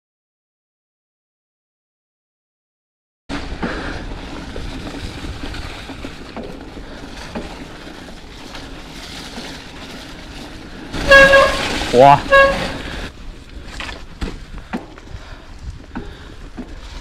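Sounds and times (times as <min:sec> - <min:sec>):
bike rumbling over trail: 0:03.3 - 0:17.0
wind buffeting microphone: 0:03.5 - 0:17.0.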